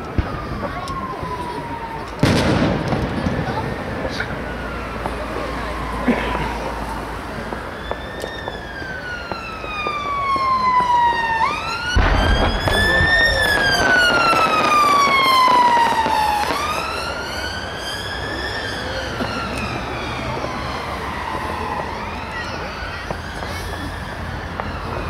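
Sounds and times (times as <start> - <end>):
emergency siren wailing: 0.0 - 25.0
firework bang with crackling: 2.2 - 4.4, 11.9 - 16.8.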